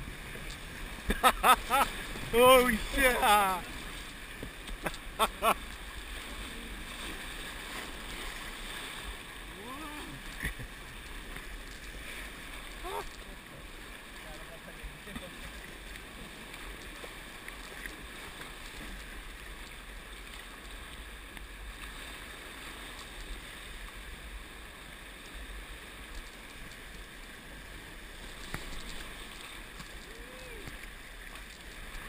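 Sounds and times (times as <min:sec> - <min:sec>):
river rapids rushing: 0:01.4 - 0:03.8.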